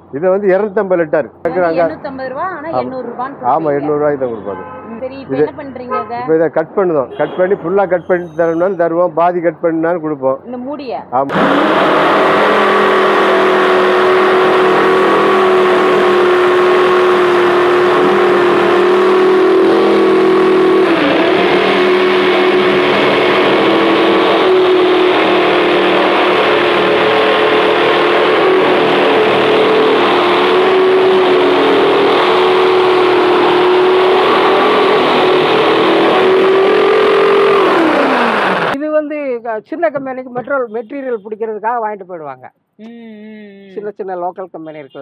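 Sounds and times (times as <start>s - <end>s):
electric jigsaw cutting plastic: 37.6s - 38.8s.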